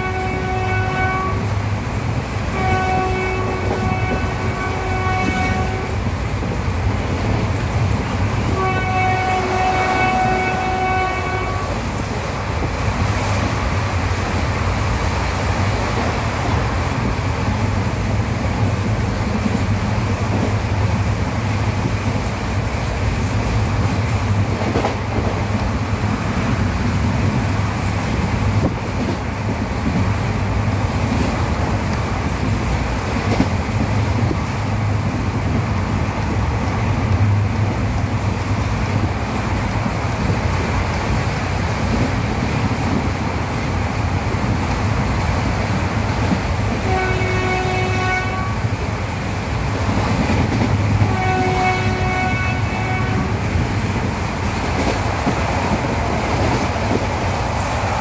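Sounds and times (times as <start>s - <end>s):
train horn: 0.0s - 1.5s, 2.5s - 6.1s, 8.4s - 11.8s, 46.7s - 48.8s, 51.0s - 53.5s
train rolling along track: 0.0s - 58.0s.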